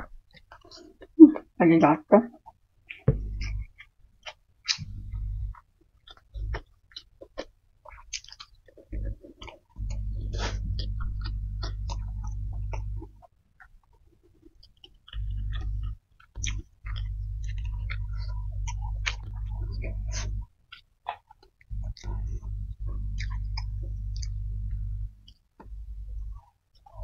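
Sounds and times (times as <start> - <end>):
close chewing and mouth sounds: 0.0 - 1.6, 2.3 - 27.0
low hum: 3.1 - 3.8, 4.7 - 6.6, 8.8 - 13.3, 15.0 - 20.6, 21.6 - 27.0.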